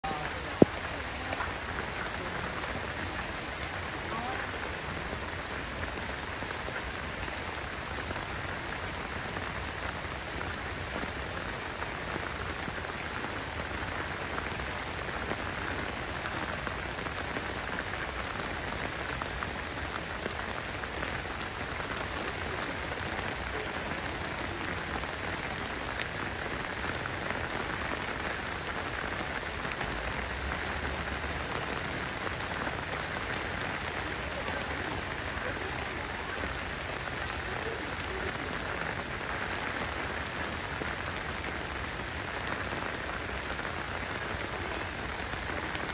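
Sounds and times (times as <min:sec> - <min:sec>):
sharp raindrop hits: 0:00.0 - 0:04.6
heavy rain: 0:00.0 - 0:45.9.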